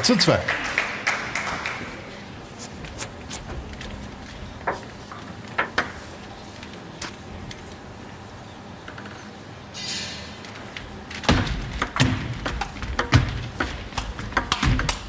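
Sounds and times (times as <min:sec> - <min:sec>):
spectator applause: 0:00.0 - 0:02.1.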